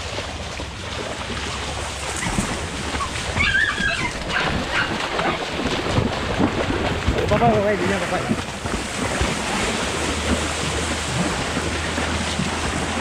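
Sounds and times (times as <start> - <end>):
feet splashing in water: 0.0 - 13.0
dog whining: 2.2 - 5.4.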